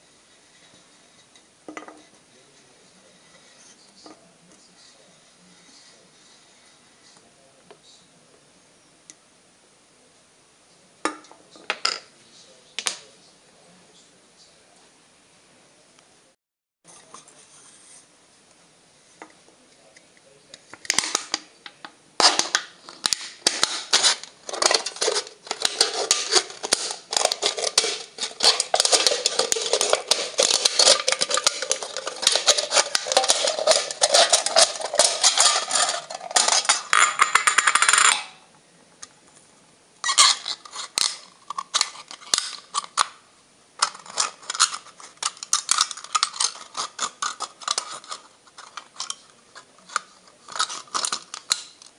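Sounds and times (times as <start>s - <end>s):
knife scraping aluminium can: 22.2s - 38.1s, 43.8s - 49.2s, 49.9s - 51.7s.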